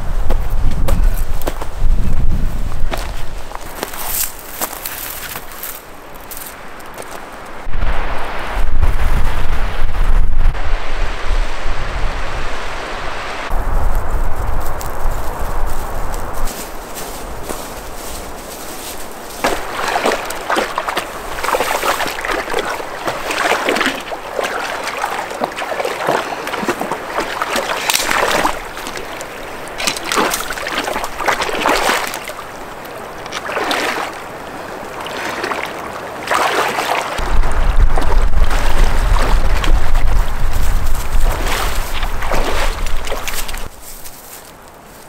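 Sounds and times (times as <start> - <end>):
stream rushing: 2.9 - 14.4, 15.7 - 43.7
water sloshing around wading legs: 16.9 - 43.7.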